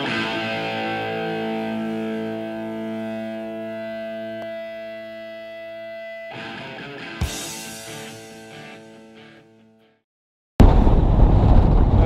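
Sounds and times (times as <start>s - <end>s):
distorted electric guitar chords: 0.0s - 10.0s.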